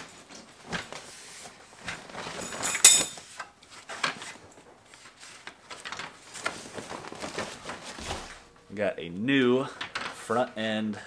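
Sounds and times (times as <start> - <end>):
plastic packaging crinkling: 3.7 - 8.5.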